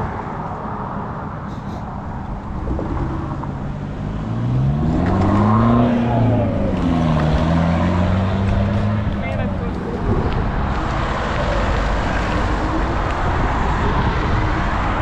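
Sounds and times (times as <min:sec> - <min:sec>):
constant low rumble: 0:00.0 - 0:07.5, 0:08.3 - 0:15.0
vehicle motor revving: 0:02.2 - 0:09.2.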